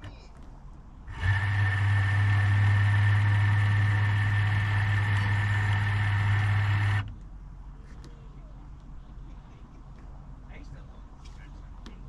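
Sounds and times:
electric motor hum and whine: 0:01.0 - 0:07.1.

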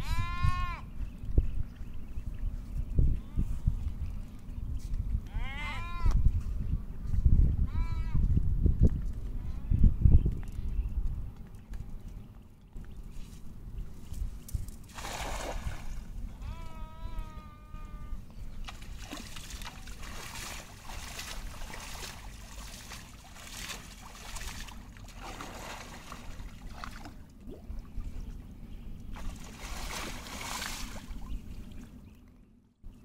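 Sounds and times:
water splashing and sloshing: 0:14.8 - 0:16.2, 0:18.6 - 0:32.2.

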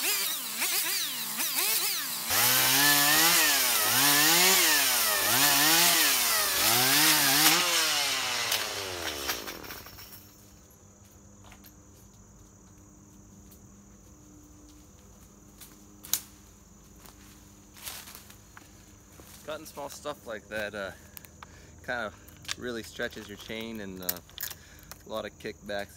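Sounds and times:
chainsaw revving: 0:00.0 - 0:10.1.

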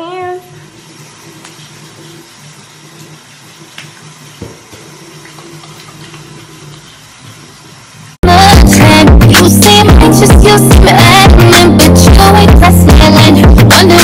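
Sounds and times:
sink tap running: 0:00.0 - 0:11.2
loud electronic music: 0:08.2 - 0:14.0.

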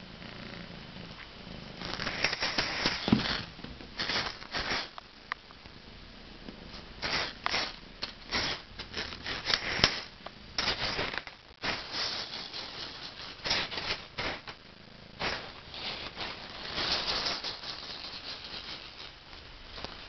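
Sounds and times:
mini maraca rattling: 0:01.8 - 0:04.9, 0:07.0 - 0:14.4, 0:15.2 - 0:19.2.

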